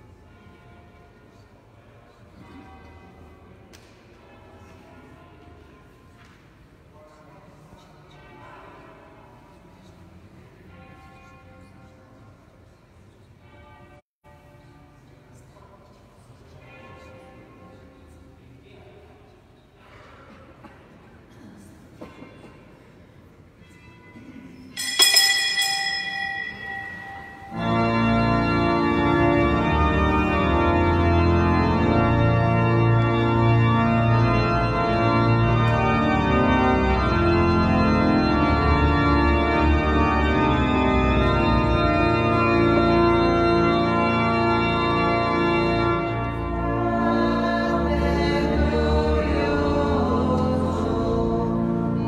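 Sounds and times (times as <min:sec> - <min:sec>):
bright ringing strike: 0:24.8 - 0:28.5
church organ chords: 0:24.8 - 0:52.0
voices singing: 0:46.8 - 0:52.0.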